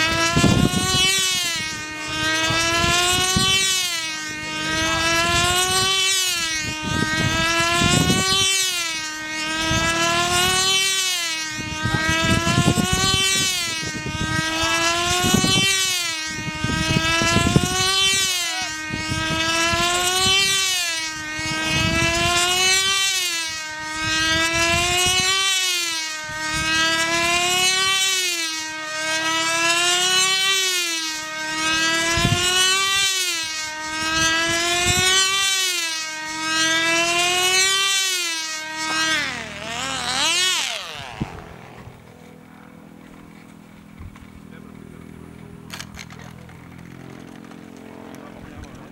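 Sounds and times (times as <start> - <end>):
wind rumbling on microphone: 0.0 - 25.4, 26.2 - 27.9, 31.5 - 33.1, 33.8 - 35.5, 38.8 - 48.9
model aircraft engine whine: 0.0 - 48.9.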